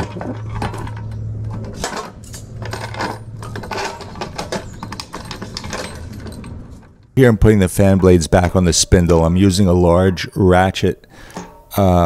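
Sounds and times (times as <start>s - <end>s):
metallic clinks and rattles: 0.0s - 7.2s.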